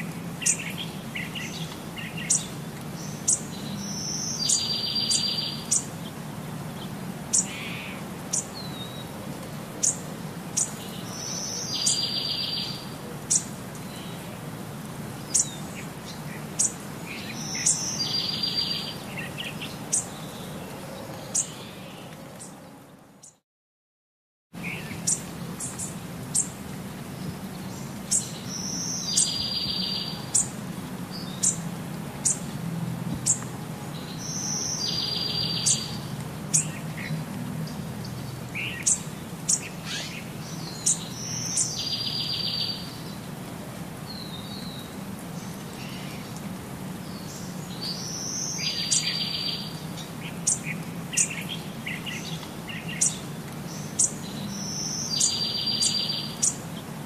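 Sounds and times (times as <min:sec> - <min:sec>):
small bird chirping and trilling: 0:00.4 - 0:05.9, 0:10.6 - 0:14.1, 0:15.3 - 0:20.3, 0:27.7 - 0:30.5, 0:34.1 - 0:37.0, 0:38.6 - 0:43.0, 0:47.1 - 0:56.6.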